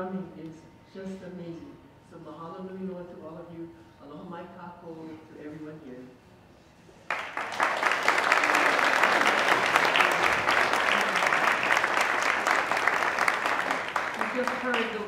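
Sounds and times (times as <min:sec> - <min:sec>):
audience clapping: 0:07.1 - 0:15.0.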